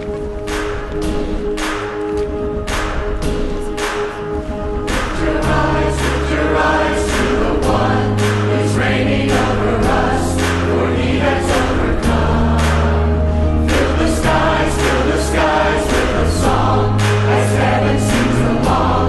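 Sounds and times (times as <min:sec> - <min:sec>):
instrumental accompaniment: 0:00.0 - 0:19.0
choir singing: 0:04.2 - 0:19.0.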